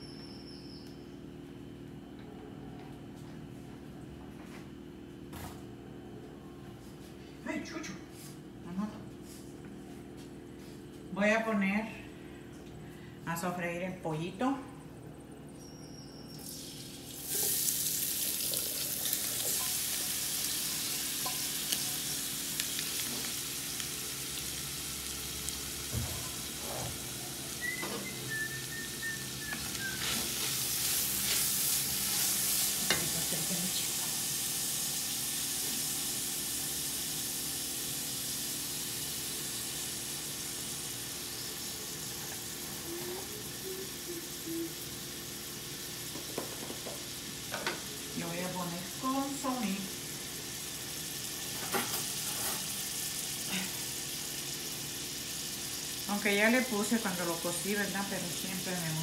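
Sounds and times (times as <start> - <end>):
chicken sizzling in hot oil: 16.3 - 59.0.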